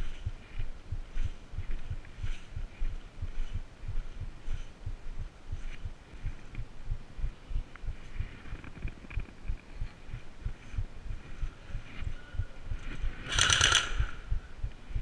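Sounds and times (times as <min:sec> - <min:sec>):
airsoft rifle burst: 0:13.2 - 0:14.2.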